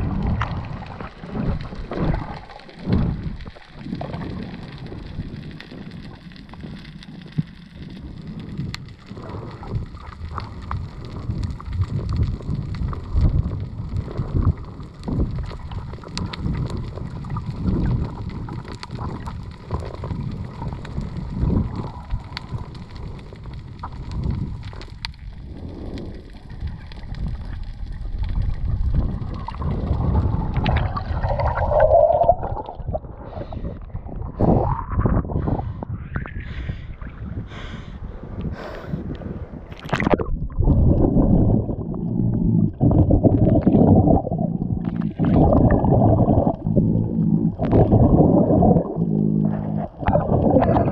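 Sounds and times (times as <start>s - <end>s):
muffled underwater water noise: 0.0s - 50.9s
burbling splash: 39.7s - 50.9s.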